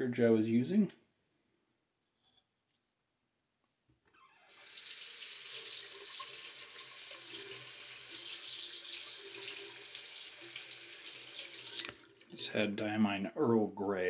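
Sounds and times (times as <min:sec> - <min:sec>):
faucet water splashing: 0:04.5 - 0:12.4.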